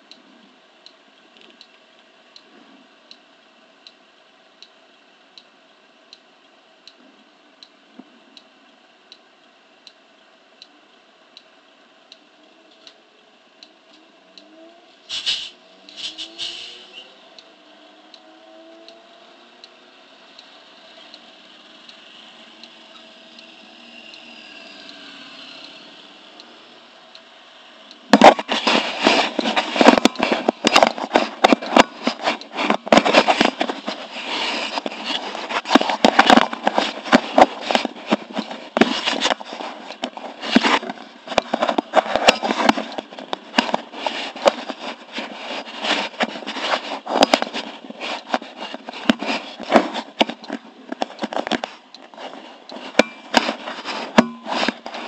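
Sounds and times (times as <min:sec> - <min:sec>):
small engine idling: 0:18.0 - 0:28.0
crackling against microphone: 0:28.1 - 0:55.0.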